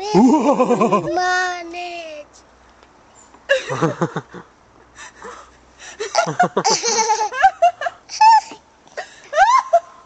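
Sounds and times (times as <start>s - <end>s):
young child laughing: 0.0s - 1.2s, 6.1s - 8.6s, 9.3s - 10.0s.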